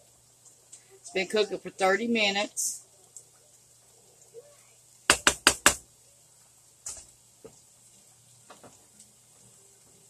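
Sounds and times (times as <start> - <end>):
wooden spoon rapping saucepan rim: 5.1 - 5.8.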